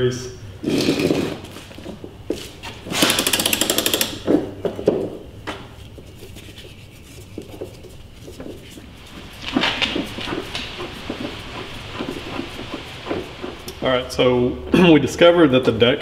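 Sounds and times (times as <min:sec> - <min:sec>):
socket ratchet clicking: 0:02.9 - 0:04.3.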